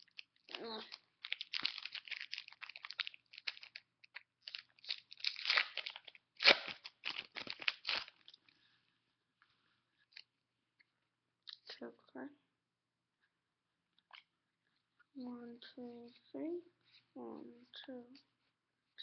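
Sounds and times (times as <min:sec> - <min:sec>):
foil pack crinkling and tearing: 0:00.0 - 0:08.3.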